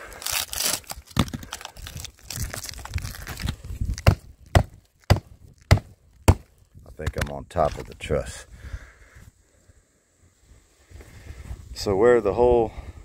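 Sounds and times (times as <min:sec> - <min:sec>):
wood crunching and splintering: 0:00.0 - 0:08.0.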